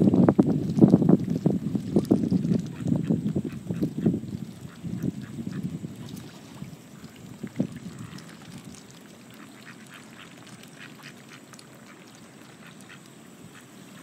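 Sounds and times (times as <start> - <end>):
bills dabbling in water: 0.0 - 14.0
ducks quacking softly: 2.7 - 6.1, 7.8 - 8.4, 9.3 - 14.0.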